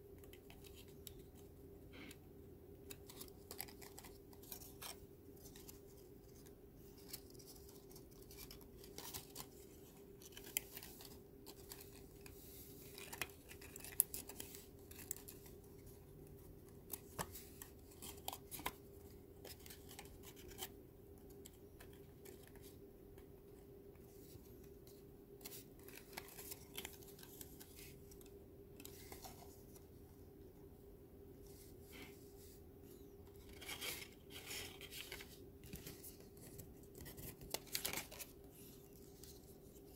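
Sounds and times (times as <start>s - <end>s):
faint steady hum: 0.0s - 39.9s
stiff paper clicks and crinkles: 2.9s - 20.7s, 33.4s - 39.9s.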